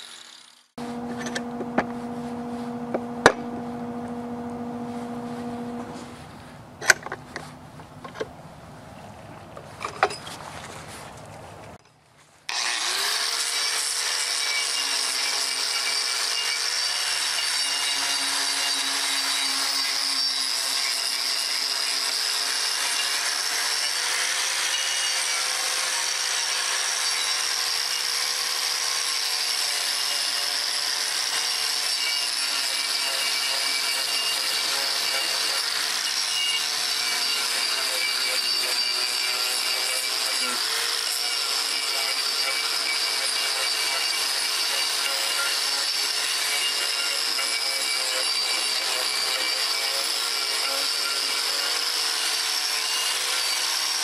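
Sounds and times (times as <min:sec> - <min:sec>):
angle grinder grinding wood: 0:00.0 - 0:08.2, 0:12.5 - 0:54.0.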